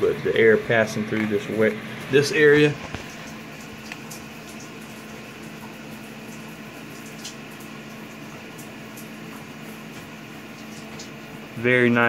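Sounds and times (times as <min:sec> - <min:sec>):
space heater fan blowing: 0:00.0 - 0:12.0.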